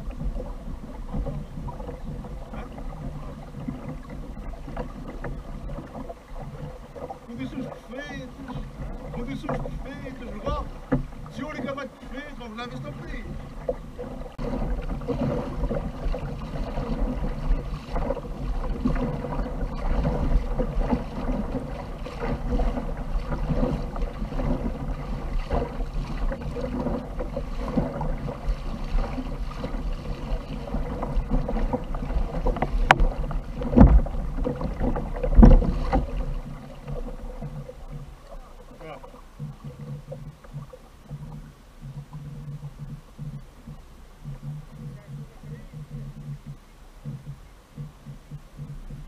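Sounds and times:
wind rumble on microphone: 0.0s - 11.6s, 12.2s - 49.0s
water slapping against kayak hull: 0.0s - 49.0s
loud thumps: 30.8s - 36.5s.

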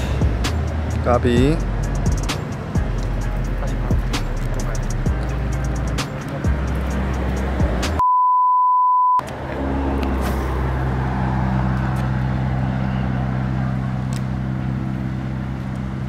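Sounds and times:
road traffic engine hum: 0.0s - 8.0s, 9.2s - 16.0s
high-pitched censor bleep: 8.0s - 9.2s.

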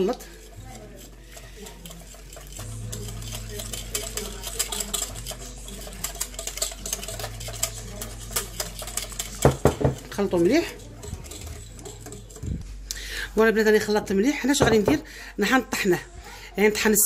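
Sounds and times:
wire whisk clicking on glass bowl: 1.0s - 12.4s.

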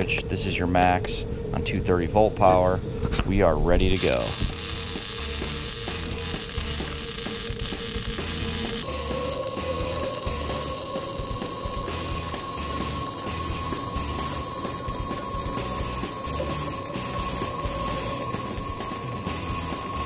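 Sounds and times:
welding arc crackling: 4.0s - 20.0s.

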